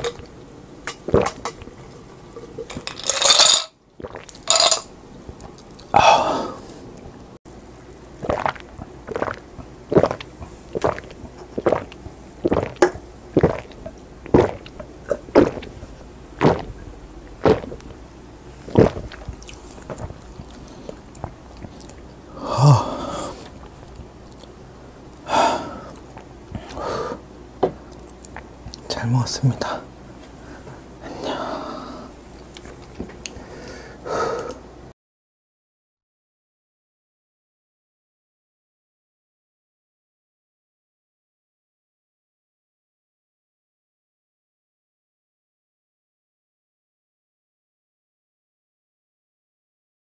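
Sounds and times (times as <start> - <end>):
person gulping soda: 0.0 - 1.8, 2.4 - 6.6, 8.2 - 15.8, 16.4 - 18.0, 18.7 - 24.6
breathy exhales: 22.3 - 23.5, 33.4 - 34.6.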